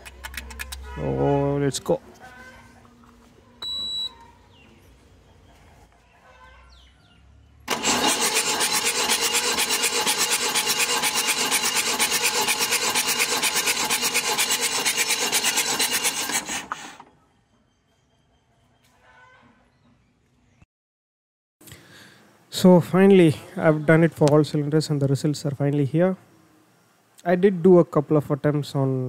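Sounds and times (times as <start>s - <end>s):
diesel engine cranking on starter: 7.6s - 17.1s.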